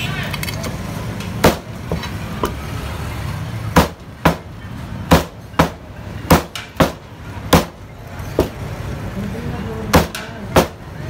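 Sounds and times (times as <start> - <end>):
cleaver chopping meat and bone: 1.4 - 1.7, 3.7 - 4.5, 5.1 - 7.8, 9.9 - 10.8.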